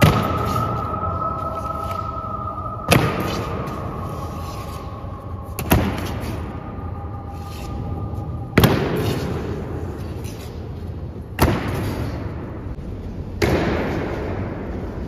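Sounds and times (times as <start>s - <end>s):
boots stamping with echo: 0.0s - 2.0s.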